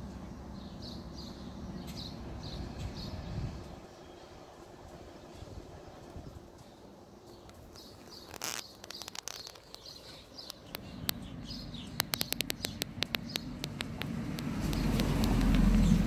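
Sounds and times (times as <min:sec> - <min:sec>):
low rumble: 0:10.9 - 0:16.0.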